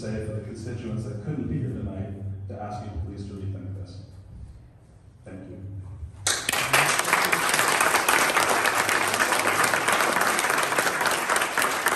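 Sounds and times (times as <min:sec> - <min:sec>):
audience clapping: 0:06.2 - 0:11.9.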